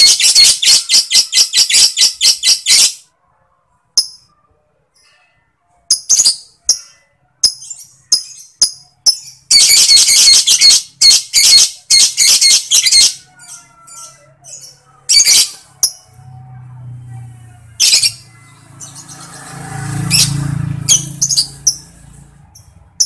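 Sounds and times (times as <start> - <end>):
lovebird chirping: 0.0 - 3.0, 5.9 - 16.4, 17.7 - 23.0
lovebird chattering trill: 5.9 - 16.0.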